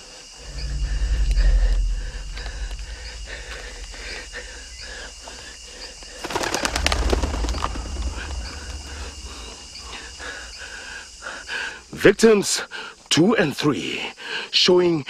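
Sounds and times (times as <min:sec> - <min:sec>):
birds chirping: 0:00.4 - 0:12.0.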